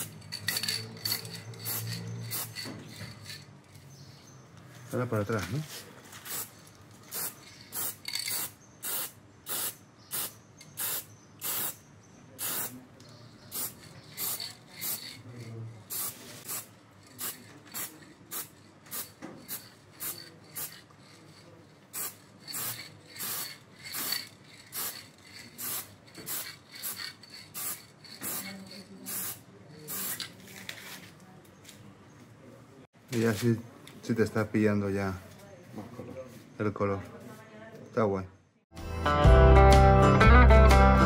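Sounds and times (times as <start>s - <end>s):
spray paint can hissing: 0.0s - 3.4s, 6.2s - 11.8s, 12.4s - 12.8s, 13.5s - 30.4s.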